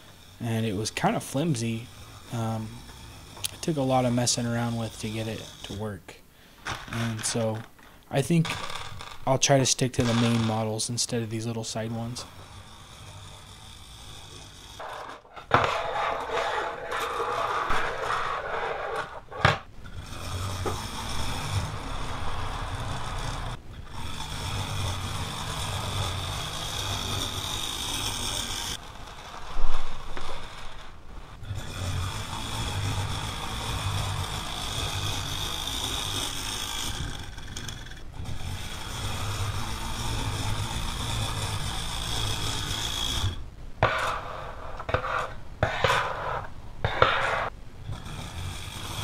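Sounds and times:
toy motor and gears whirring: 0.0s - 6.0s, 6.6s - 49.0s
model scraping along: 0.0s - 49.0s
small parts rattling on tabletop: 6.6s - 30.9s.

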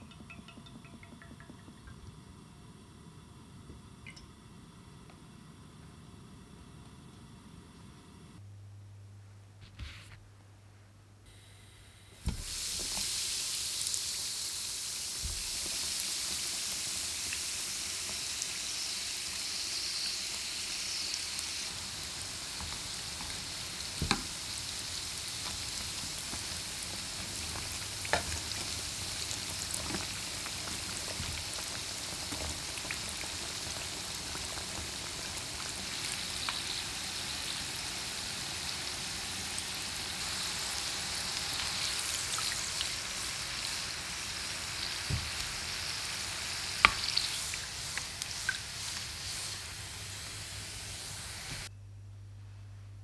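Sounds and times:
food sizzling in hot oil: 12.2s - 51.7s.

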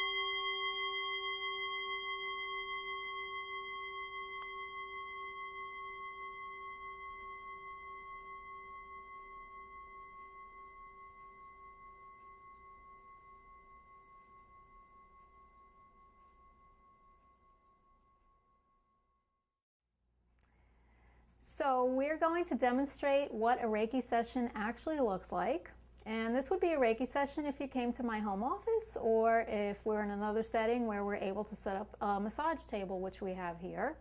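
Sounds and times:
meditation bell ringing: 0.0s - 19.0s.

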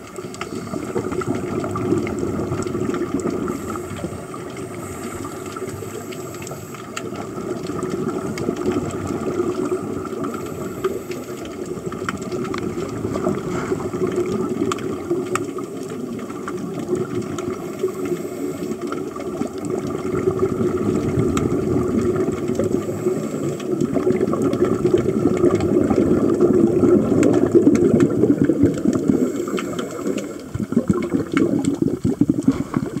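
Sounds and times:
underwater air bubbles hissing: 0.0s - 33.0s
underwater clicks: 0.0s - 33.0s.

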